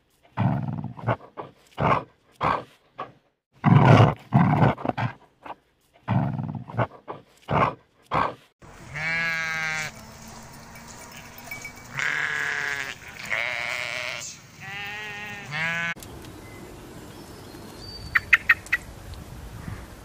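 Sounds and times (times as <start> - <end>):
sheep bleating: 8.7 - 10.1, 10.7 - 16.0.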